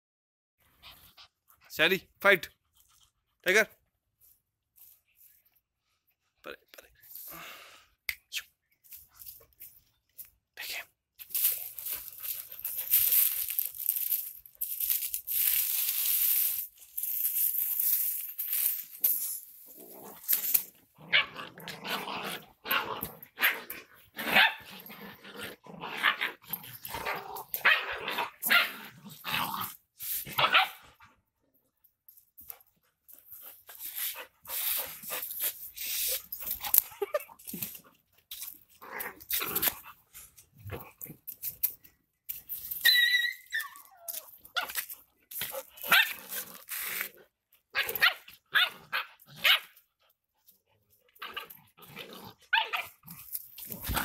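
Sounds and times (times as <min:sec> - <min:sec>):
dogs growling and barking: 0:19.7 - 0:31.2, 0:34.2 - 0:41.3, 0:43.9 - 0:49.8, 0:50.4 - 0:54.0.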